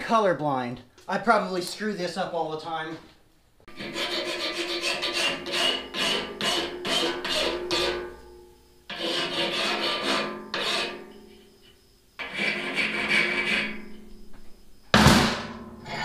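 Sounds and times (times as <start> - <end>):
hand file rasping on metal: 3.7 - 8.0, 8.9 - 11.0, 12.2 - 13.8.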